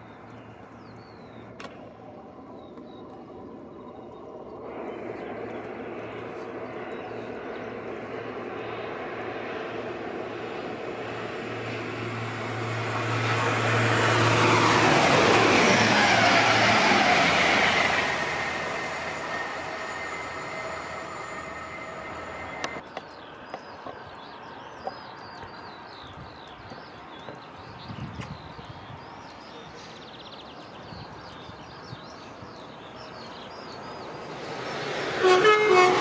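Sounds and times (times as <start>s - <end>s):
faint birdsong: 0.0s - 15.4s, 17.7s - 35.0s
train passing at speed: 0.0s - 36.0s.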